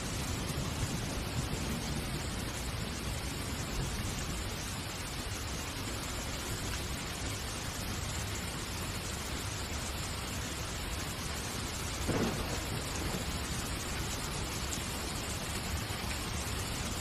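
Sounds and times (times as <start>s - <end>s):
steady hiss: 0.0s - 17.0s
low thump: 12.1s - 12.8s.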